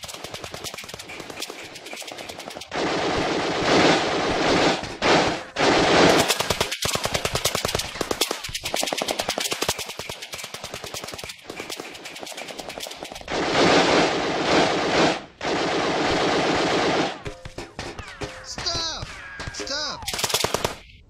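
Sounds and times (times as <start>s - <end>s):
rapid automatic rifle fire: 0.0s - 17.2s, 20.1s - 20.9s.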